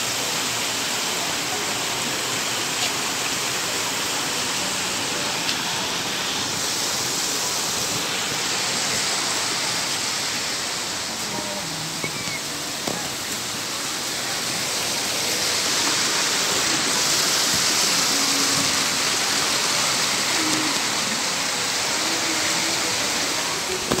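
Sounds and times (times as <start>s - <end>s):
stream water rushing over rocks: 0.0s - 24.0s.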